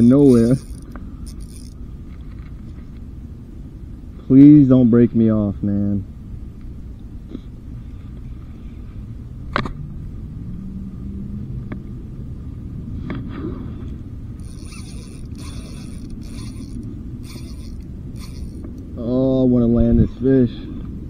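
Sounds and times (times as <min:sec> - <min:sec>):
fishing reel buzzing: 0:00.0 - 0:01.9, 0:14.4 - 0:18.8
low steady rumble: 0:00.0 - 0:21.0.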